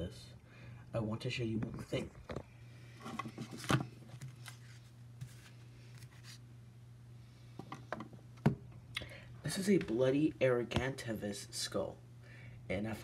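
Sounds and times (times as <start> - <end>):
cardboard rustling: 3.0 - 6.4.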